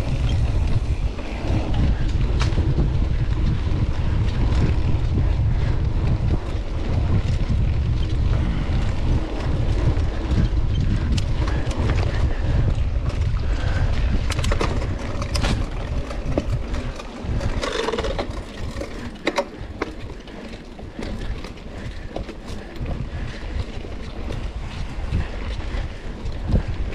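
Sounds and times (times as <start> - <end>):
bike clicks and rattles: 0.0 - 26.9
wind buffeting microphone: 0.0 - 26.9.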